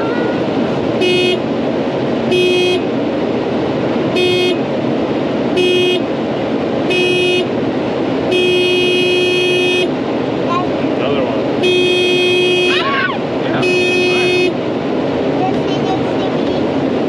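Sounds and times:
combine horn honking: 0.0 - 1.5, 2.3 - 2.9, 4.1 - 4.7, 5.5 - 6.1, 6.8 - 7.6, 8.3 - 10.0, 11.6 - 14.6
combine running inside cab: 0.0 - 17.0.

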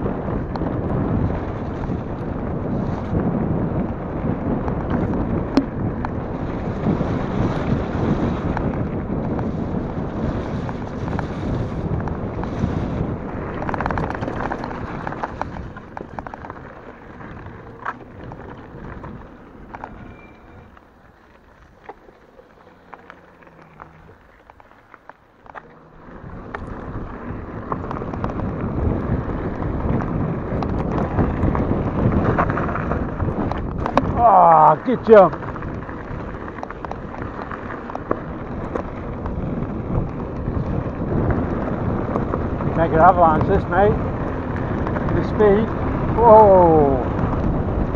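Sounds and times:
bicycle tyres rolling on gravel: 0.0 - 47.9
wind rushing over microphone: 0.0 - 47.9
small stones crunching: 10.4 - 47.4.

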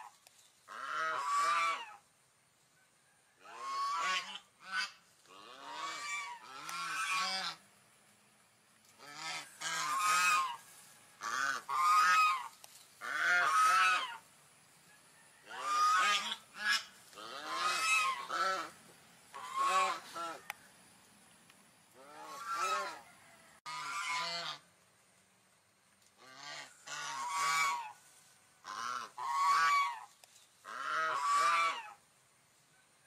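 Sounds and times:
swan honking calls: 0.7 - 2.0, 3.4 - 7.6, 9.0 - 14.3, 15.5 - 20.5, 22.0 - 23.0, 23.6 - 24.7, 26.2 - 28.0, 28.6 - 32.0.

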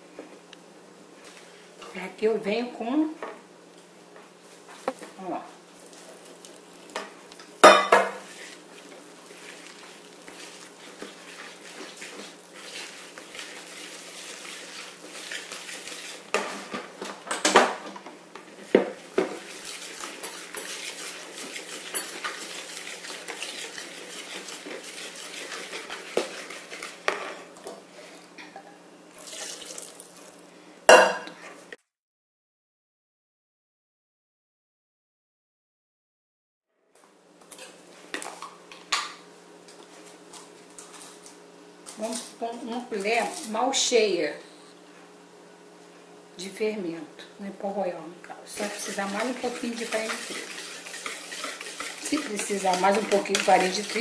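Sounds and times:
whisk clinking against bowl: 19.7 - 26.9, 48.6 - 54.0.

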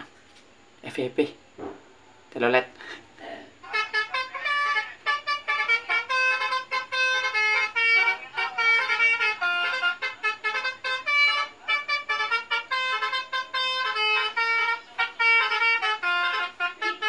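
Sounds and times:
multi-tone musical bus horn: 3.6 - 17.0.

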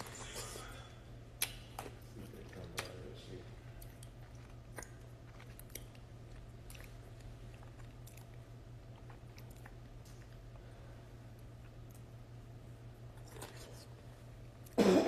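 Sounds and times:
steady low hum: 0.0 - 15.0
mouth clicks and smacks: 1.4 - 2.0.

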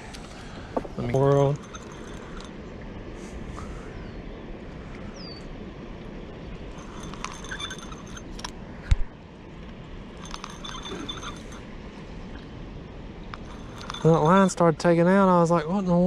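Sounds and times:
steady background rush: 0.0 - 15.7
fishing reel clicking and rattling: 1.4 - 2.5, 6.7 - 8.5, 10.2 - 11.6, 13.4 - 14.5.

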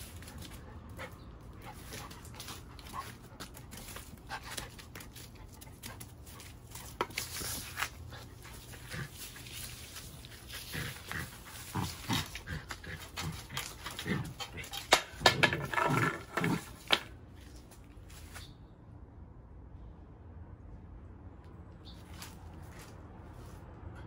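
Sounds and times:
broom scraping over concrete: 6.7 - 17.5.

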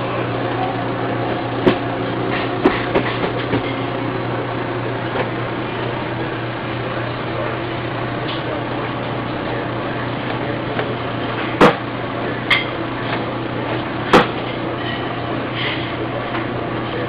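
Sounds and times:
printer mechanical hum: 0.0 - 17.0.

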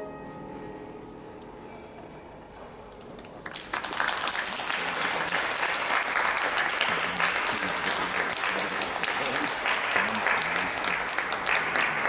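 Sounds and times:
audience applause: 3.4 - 12.0.

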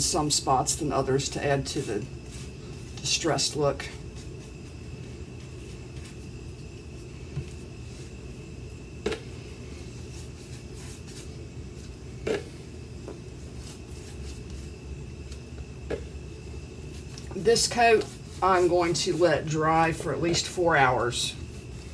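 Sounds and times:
steady low hum: 0.0 - 21.9
paintbrush swishing on wood: 1.0 - 8.3, 9.7 - 12.0, 13.2 - 15.4, 16.8 - 21.9.

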